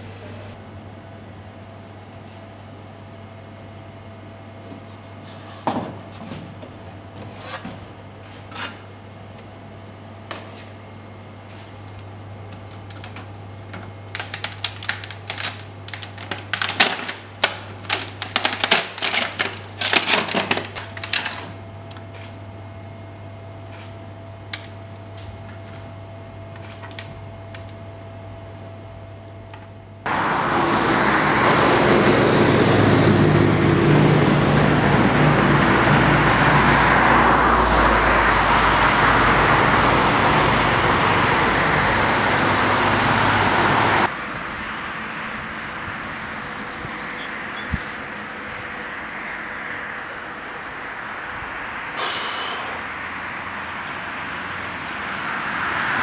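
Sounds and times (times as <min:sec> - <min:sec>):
loud steady rushing noise: 0:30.0 - 0:56.0.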